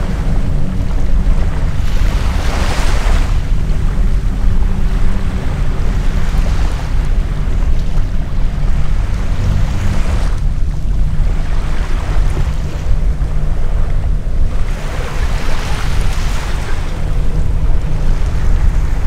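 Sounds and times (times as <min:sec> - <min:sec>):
propeller planes droning overhead: 0:00.0 - 0:19.0
wind buffeting microphone: 0:00.0 - 0:19.0.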